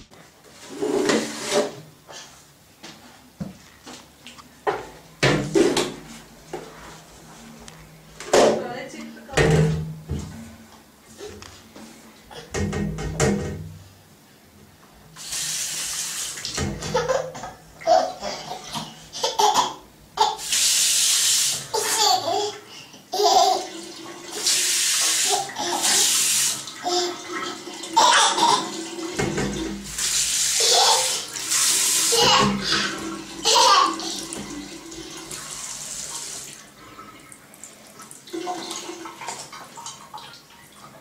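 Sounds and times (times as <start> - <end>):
tap water splashing into sink: 12.5 - 13.6, 15.8 - 18.0, 23.8 - 36.6
child laughing and squealing: 21.8 - 23.7, 30.6 - 31.3, 32.1 - 34.2.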